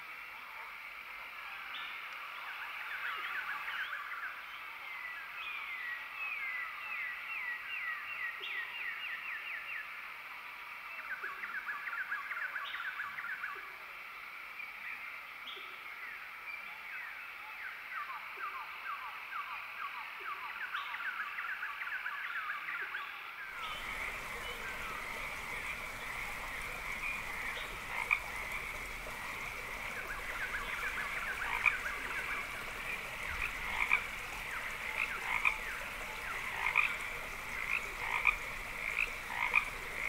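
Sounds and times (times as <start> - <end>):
frogs chirping: 23.6 - 40.0.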